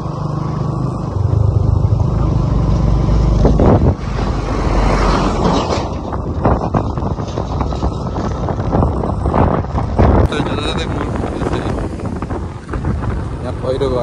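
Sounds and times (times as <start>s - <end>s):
motorcycle engine running: 0.0s - 4.0s
tractor passing: 0.0s - 9.3s
wind rushing over microphone: 0.0s - 14.0s.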